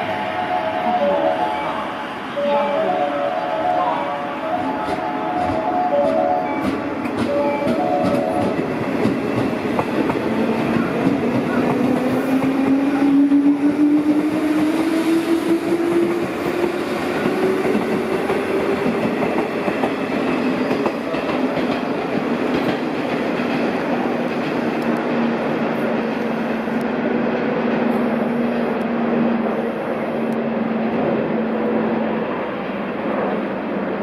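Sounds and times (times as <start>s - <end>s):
train humming along tracks: 0.0s - 34.0s
wheels clacking on rail joints: 4.8s - 12.7s, 16.6s - 25.3s.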